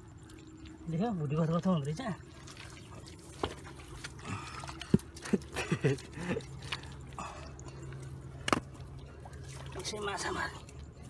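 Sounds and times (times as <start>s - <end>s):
steady low hum: 0.0s - 11.0s
water dripping and splashing: 0.0s - 11.0s.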